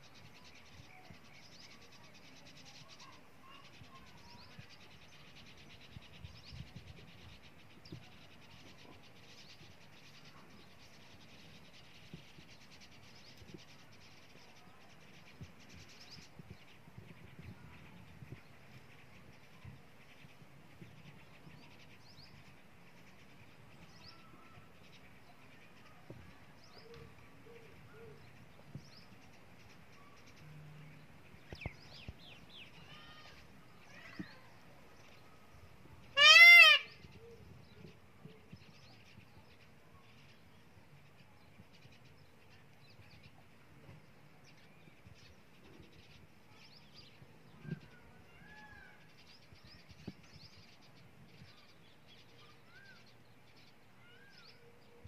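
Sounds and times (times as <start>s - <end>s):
small birds chirping: 0.0s - 55.0s
loud nasal animal call: 36.2s - 37.0s.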